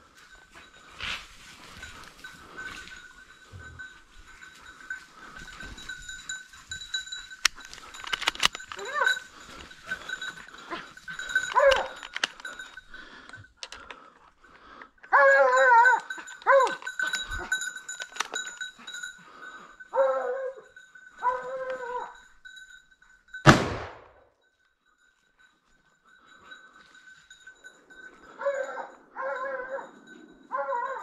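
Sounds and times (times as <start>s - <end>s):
hounds baying: 0.0s - 22.5s, 26.2s - 31.0s
rifle gunshot: 23.5s - 24.2s.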